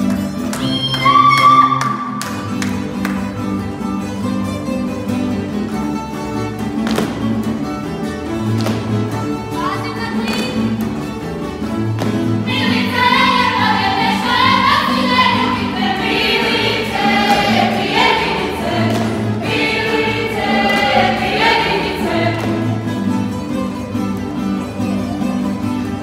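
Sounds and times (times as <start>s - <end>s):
plucked string band: 1.9s - 26.0s
group singing folk song: 12.0s - 24.0s.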